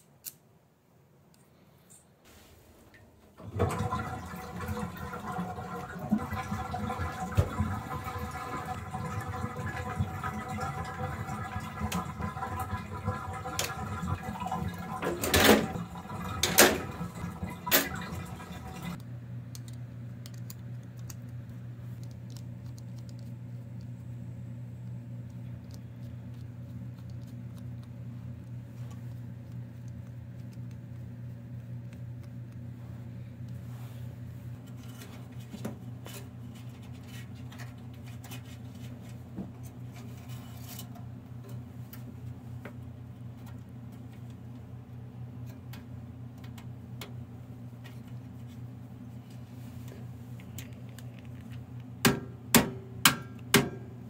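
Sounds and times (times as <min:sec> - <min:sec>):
steady low hum: 0:00.6 - 0:54.0
water running into bathtub: 0:03.4 - 0:19.0.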